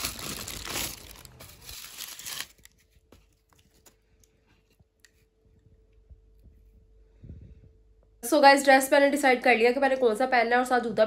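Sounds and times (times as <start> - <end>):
tissue paper crinkling: 0.0 - 4.0.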